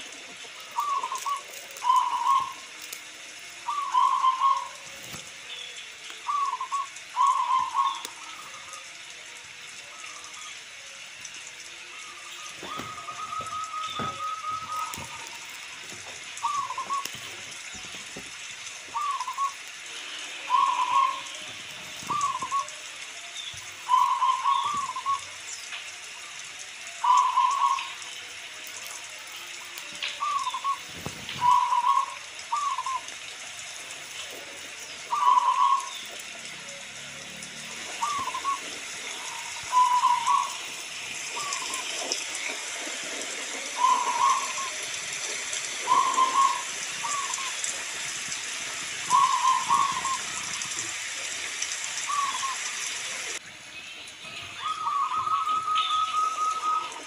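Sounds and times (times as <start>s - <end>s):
dove trilling coo: 0.0s - 2.8s, 3.6s - 5.2s, 6.2s - 9.0s, 11.9s - 18.0s, 18.8s - 19.7s, 20.4s - 23.0s, 23.8s - 25.4s, 26.9s - 28.0s, 30.2s - 33.2s, 34.3s - 36.8s, 37.5s - 42.6s, 43.2s - 45.0s, 45.6s - 47.8s, 49.0s - 50.8s, 52.0s - 53.3s, 54.6s - 57.0s
rain hiss: 0.0s - 57.0s.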